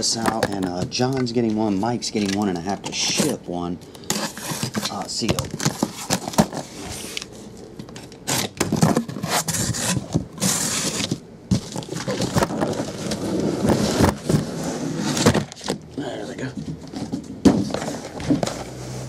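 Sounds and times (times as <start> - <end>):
cardboard flaps scraping and rustling: 4.1 - 7.4, 8.2 - 15.8, 16.4 - 19.0
boxes knocking against cardboard: 8.4 - 14.5, 15.1 - 15.8, 16.4 - 18.7.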